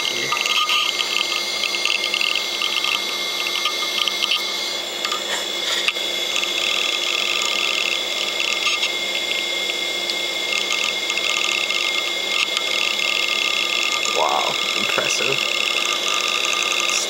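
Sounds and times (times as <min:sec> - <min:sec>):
hard drive head-seek chatter: 0:00.0 - 0:17.0
hard drive spindle whine: 0:00.0 - 0:17.0
sharp clicks: 0:00.3 - 0:04.4.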